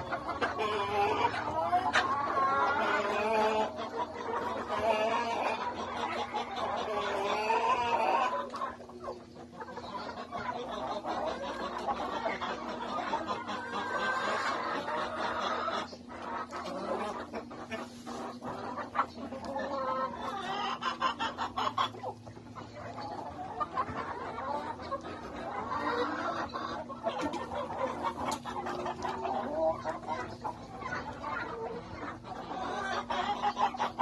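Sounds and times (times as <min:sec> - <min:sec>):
hens clucking: 0:00.0 - 0:34.0.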